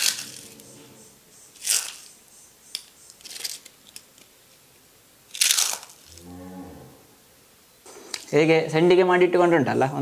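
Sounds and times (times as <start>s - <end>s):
crisps crunching in a hand: 5.3s - 6.2s.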